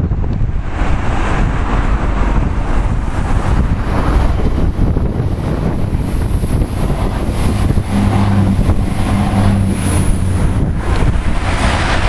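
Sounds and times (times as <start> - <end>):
diesel engine drone: 0.0 - 12.0
train running noise: 0.0 - 12.0.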